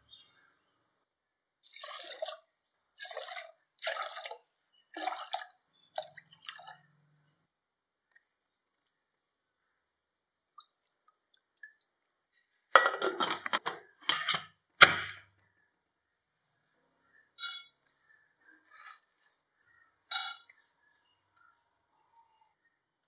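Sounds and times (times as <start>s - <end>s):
metal spoon clinking on cookware: 14.1s - 14.5s, 17.4s - 17.8s, 20.1s - 20.5s.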